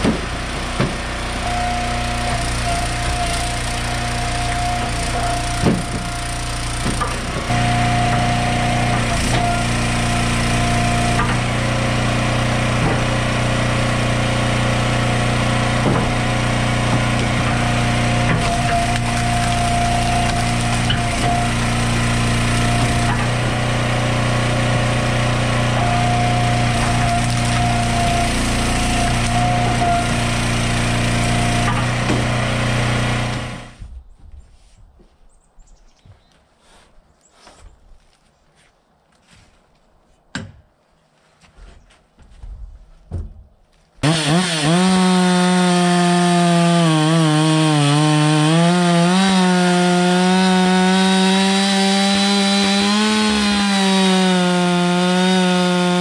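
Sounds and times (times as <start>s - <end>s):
wood splitter engine running: 0.0s - 33.8s, 44.0s - 56.0s
firewood cracking: 15.5s - 33.5s
wood pieces dropping: 15.8s - 23.5s.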